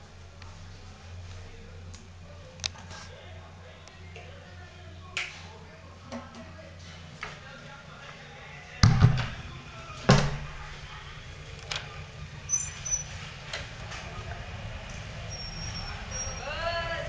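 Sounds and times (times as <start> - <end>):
door banging: 8.8 - 10.6.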